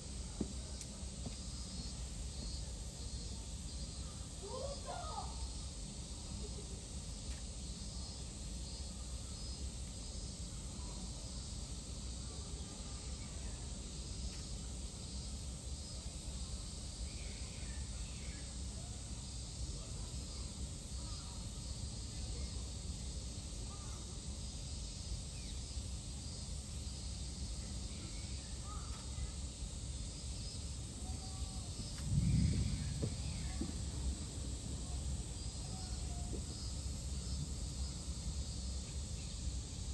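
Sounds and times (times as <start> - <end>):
faint high hiss: 0.0 - 39.9
steady low rumble: 31.8 - 35.6
short low thud: 32.0 - 34.0.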